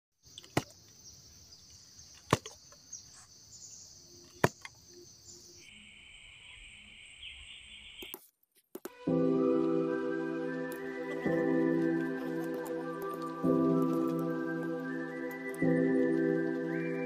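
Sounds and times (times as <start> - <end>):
insect buzzing: 9.1 - 17.0.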